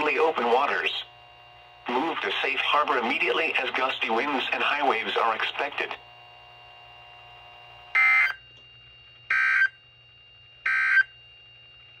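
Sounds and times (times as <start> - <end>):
faint steady hum: 0.0 - 12.0
data tone bursts: 8.0 - 8.4, 9.3 - 9.8, 10.6 - 11.1.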